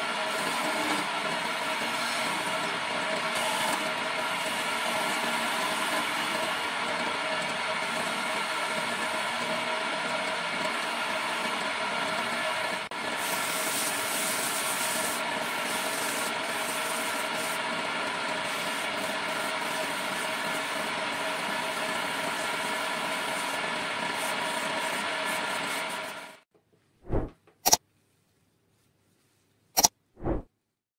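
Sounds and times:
wood lathe motor humming: 0.0 - 26.3
sandpaper rubbing spinning wood: 0.1 - 6.5, 13.0 - 26.4
short sounds: 27.0 - 27.8, 29.8 - 30.5.

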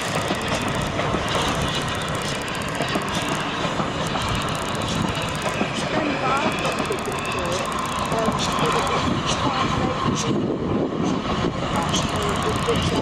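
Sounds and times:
steam train passing: 0.0 - 13.0
wheels clicking on track: 0.0 - 13.0.

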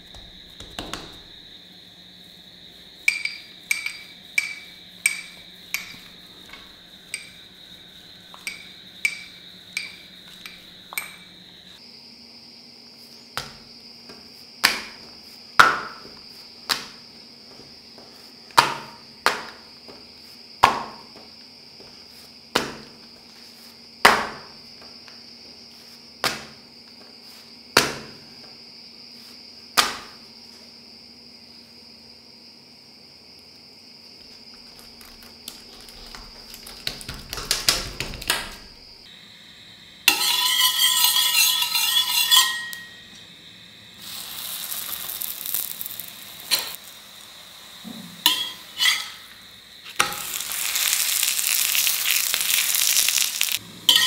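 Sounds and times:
faint high whine: 38.8 - 50.8.

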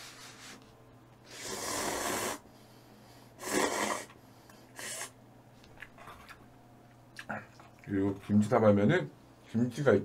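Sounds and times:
person eating noodles: 1.3 - 2.4, 3.4 - 5.2.

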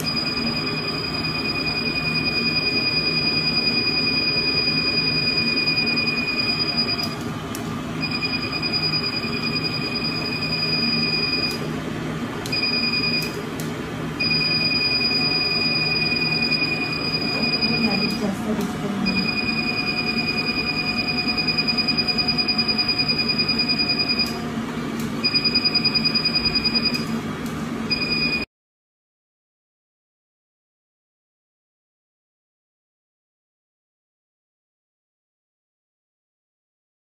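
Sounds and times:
laser applicator beeping: 0.0 - 11.7, 12.4 - 13.4, 14.2 - 24.4, 25.0 - 27.2, 27.9 - 28.5
low machine hum: 0.0 - 28.5.

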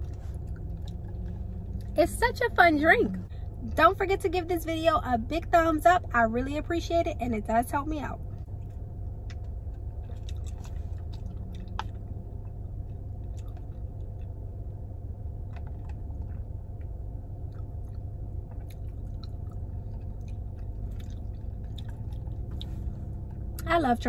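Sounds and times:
wet mouth clicks chewing: 0.0 - 2.0, 8.7 - 14.4, 15.5 - 23.7
steady low hum: 0.0 - 24.0.

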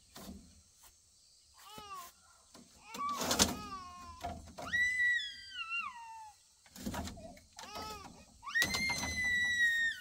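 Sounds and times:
young child crying: 2.8 - 6.4.

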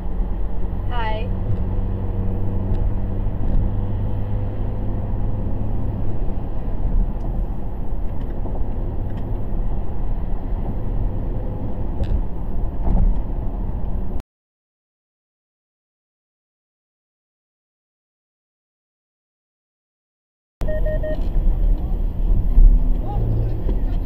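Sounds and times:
car cabin road noise: 0.0 - 14.2, 20.6 - 24.0.

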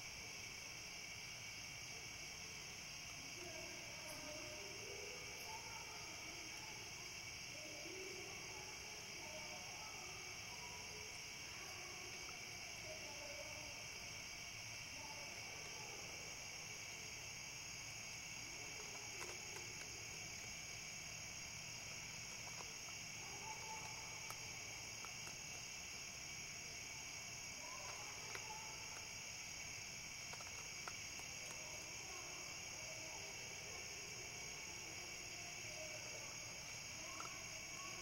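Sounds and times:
night insects trilling: 0.0 - 38.0
faint clicks: 18.4 - 32.7, 35.2 - 38.0.

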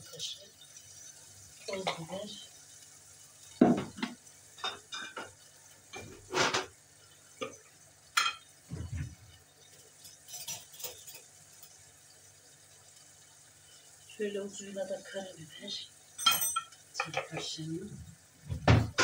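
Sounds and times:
teaspoon clinking: 16.2 - 17.2.

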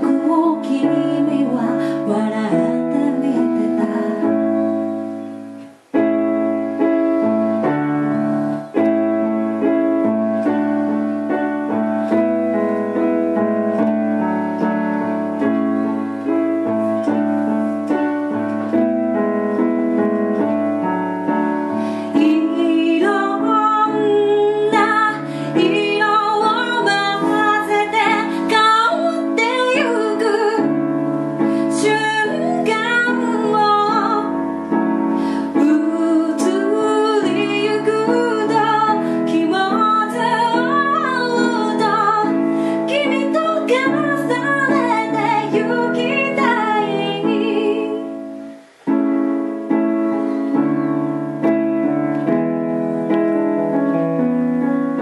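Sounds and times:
woman singing: 0.0 - 4.9, 20.8 - 48.3
keyboard piano chords: 0.0 - 55.0.

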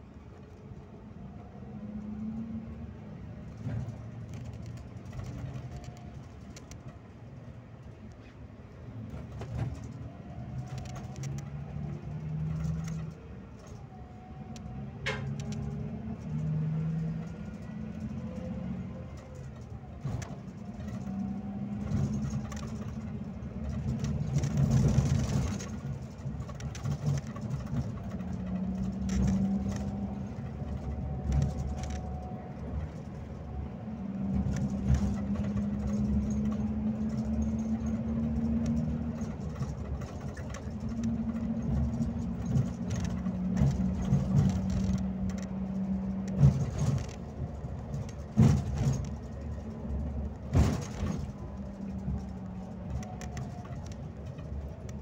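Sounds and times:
bus diesel engine droning: 0.0 - 55.0
road rumble: 0.0 - 55.0
knocks and rattles: 34.3 - 54.9.

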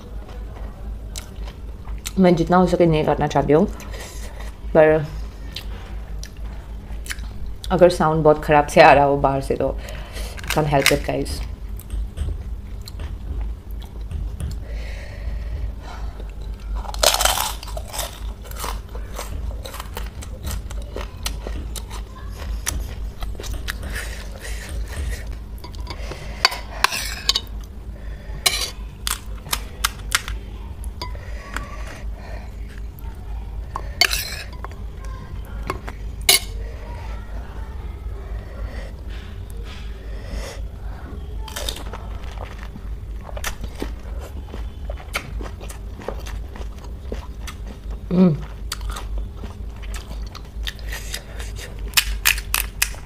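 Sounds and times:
utensils clinking against dishes: 16.4 - 27.7, 28.4 - 30.4, 31.0 - 32.0, 33.7 - 34.8, 35.6 - 36.6
crisp shells crunching: 16.8 - 21.4.

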